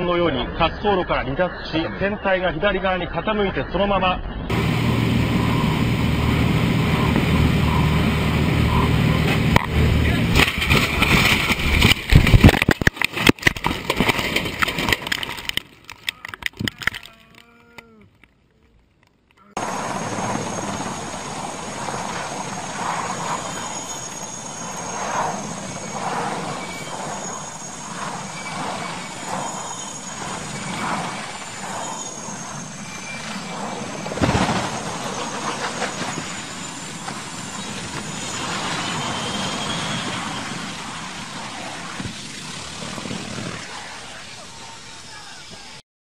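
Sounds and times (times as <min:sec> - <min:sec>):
rumbling noise: 0:04.2 - 0:45.8
thin high whine: 0:04.4 - 0:13.0, 0:19.6 - 0:45.8
helicopter rotor beating: 0:04.5 - 0:17.1, 0:19.6 - 0:45.8
loud crash: 0:09.2 - 0:15.5, 0:25.3 - 0:40.7.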